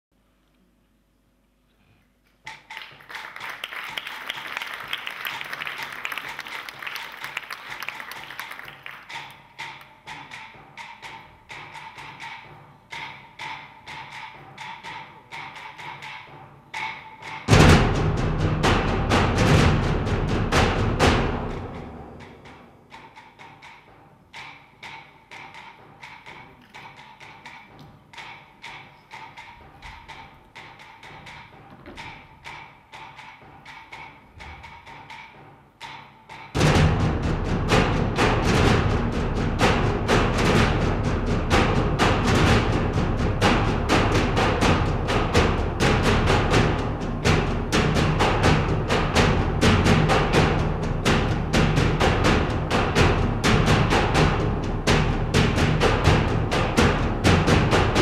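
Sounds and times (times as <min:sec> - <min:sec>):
sparse percussive dance music: 0:02.4 - 0:58.0
audience applause: 0:02.7 - 0:09.4
deep drum hit: 0:17.5 - 0:22.3, 0:36.6 - 0:58.0.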